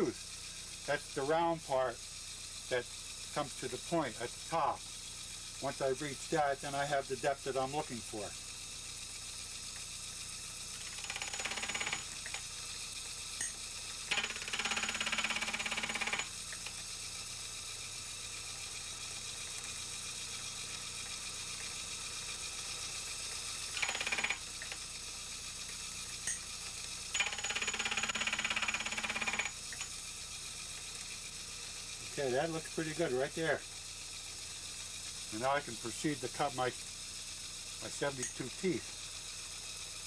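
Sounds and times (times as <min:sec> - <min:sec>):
milling machine hum: 0:10.6 - 0:40.0.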